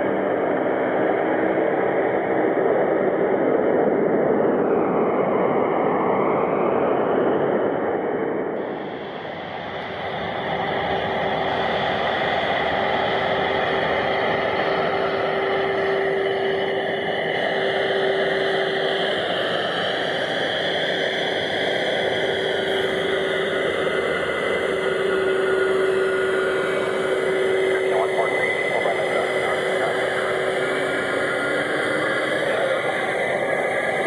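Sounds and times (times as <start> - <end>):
jet engines running: 0.0 - 34.0.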